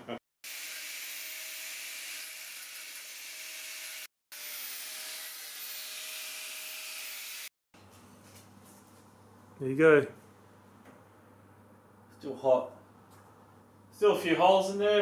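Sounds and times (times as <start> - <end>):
angle grinder on metal: 0.5 - 7.5.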